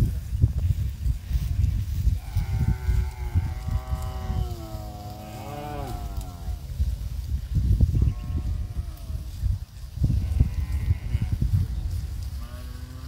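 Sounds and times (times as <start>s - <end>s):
cow mooing: 2.3s - 6.6s.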